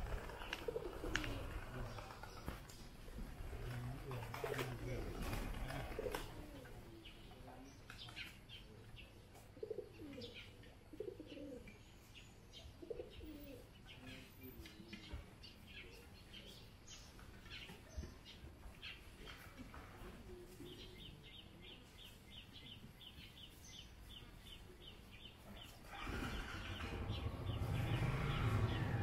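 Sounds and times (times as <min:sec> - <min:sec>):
bird cooing calls: 0:00.0 - 0:02.5, 0:09.6 - 0:11.8, 0:12.6 - 0:13.7
small birds chirping: 0:00.0 - 0:29.0.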